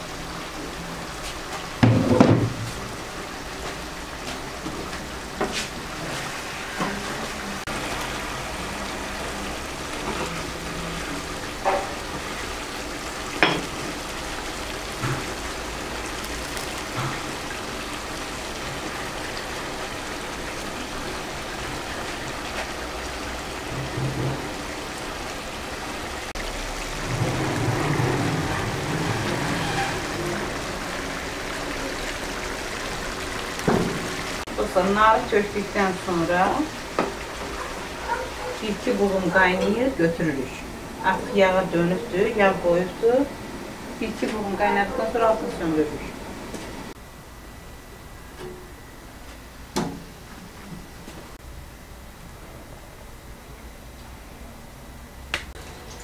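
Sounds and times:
broth bubbling and sizzling: 0.0s - 56.0s
cookware knocks and clinks: 13.4s - 13.7s.

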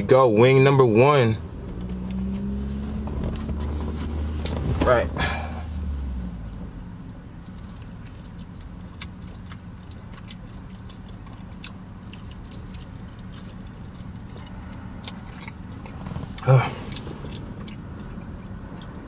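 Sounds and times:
person chewing: 7.4s - 19.0s.

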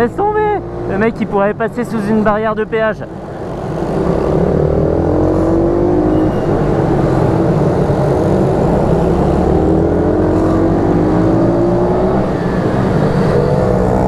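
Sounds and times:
motorbike engine accelerating: 3.4s - 14.0s.

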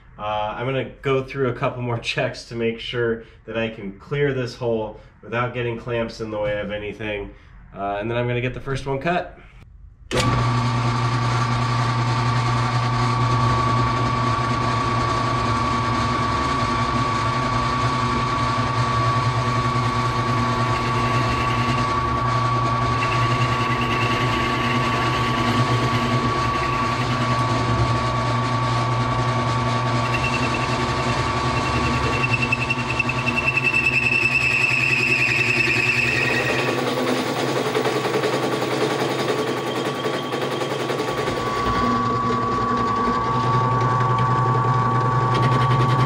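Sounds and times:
drill press running: 10.1s - 46.0s
cutter squealing in metal: 20.4s - 27.6s, 29.9s - 37.4s.

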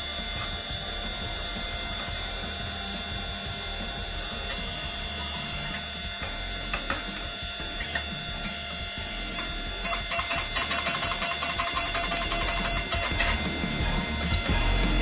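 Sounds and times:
hydraulic pump motor hum: 0.0s - 15.0s
sharp metallic clicks: 9.3s - 14.8s.

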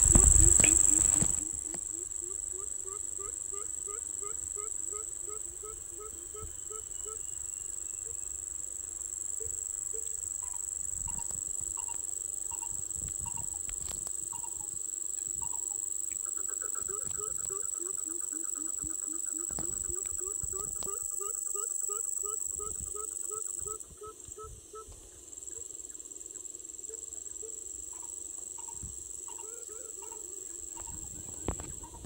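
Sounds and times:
bird giving low hoots: 0.0s - 7.3s
high-pitched insect drone: 0.0s - 32.0s.

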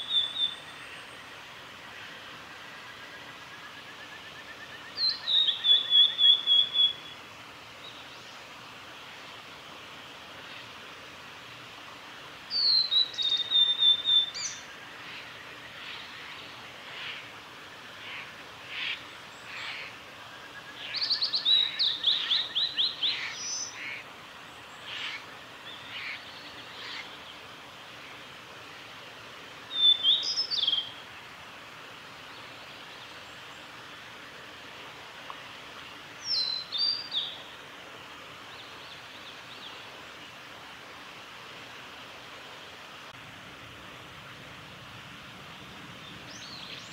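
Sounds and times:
bird singing high whistles: 5.0s - 7.1s, 12.5s - 14.6s, 29.8s - 30.9s.

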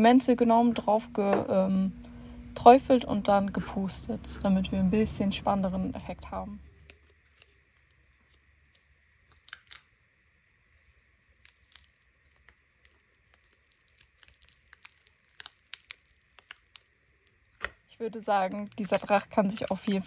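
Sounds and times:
silicone mould peeling crackles: 6.7s - 20.0s.

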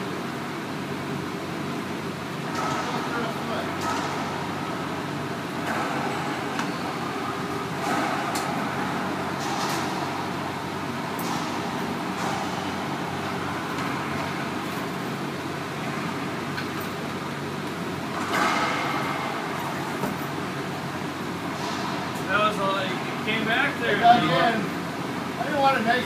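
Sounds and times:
steady background hum: 0.0s - 26.0s
racquetball hits echoing: 2.4s - 14.6s, 18.1s - 20.2s.

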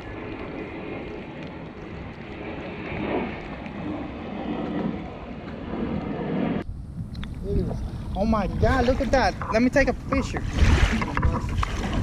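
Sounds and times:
wind noise on microphone: 0.0s - 12.0s
water moving around a hull: 7.2s - 12.0s.

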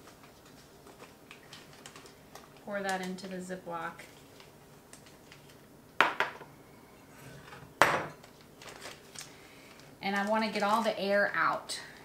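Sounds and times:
kitchenware knocking on counter: 6.0s - 6.4s, 7.8s - 8.2s.

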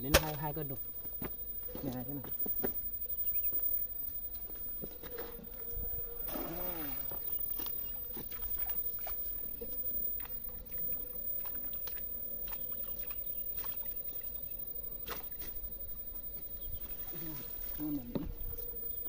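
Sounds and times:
water sloshing: 5.8s - 18.7s.

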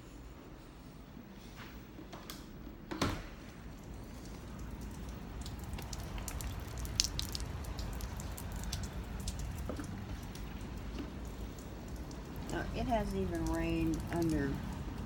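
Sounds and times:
light rain falling: 3.4s - 15.0s
drips ticking on hard surfaces: 3.7s - 15.0s.

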